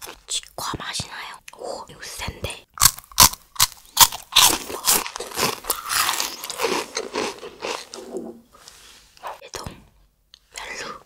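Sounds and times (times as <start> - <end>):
crunching wafer bites: 2.8 - 8.0.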